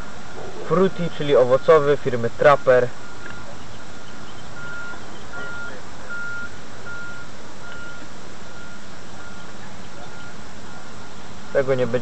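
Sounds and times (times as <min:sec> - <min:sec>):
background hiss: 0:00.0 - 0:12.0
reversing alarm beeping: 0:00.9 - 0:03.6, 0:04.3 - 0:11.9.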